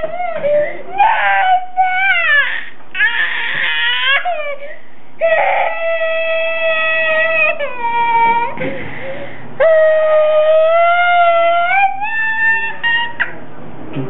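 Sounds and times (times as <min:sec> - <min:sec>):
toddler girl crying: 0:00.0 - 0:08.6.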